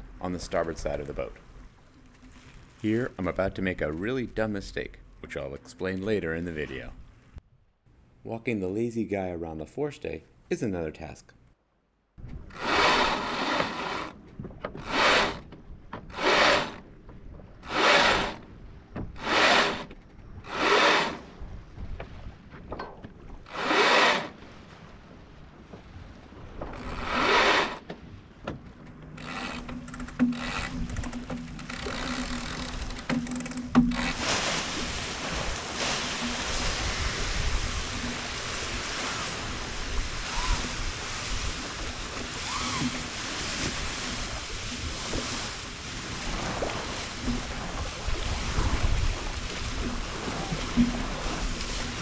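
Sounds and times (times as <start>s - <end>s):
water and wind along hull: 0.0s - 8.9s, 11.6s - 52.0s
rope rasping over mast: 12.5s - 14.2s, 14.8s - 15.5s, 16.1s - 16.9s, 17.6s - 18.4s, 19.1s - 21.2s, 23.5s - 24.4s, 26.8s - 27.8s, 29.2s - 34.6s.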